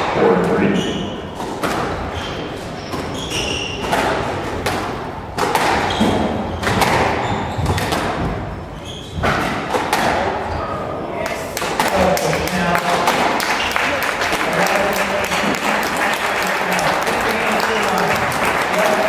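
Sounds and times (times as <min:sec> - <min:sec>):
squash ball hitting racquets and walls: 0:00.0 - 0:19.0
shoes squeaking on wooden floor: 0:02.0 - 0:04.0, 0:05.7 - 0:09.8.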